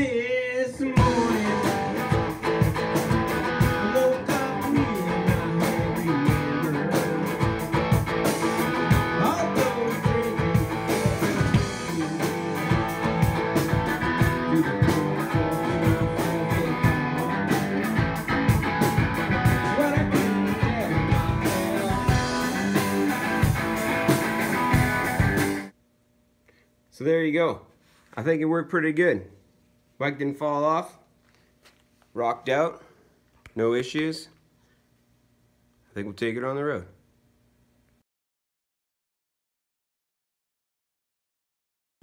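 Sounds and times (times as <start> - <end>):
electric guitar over a beat: 0.0 - 25.7.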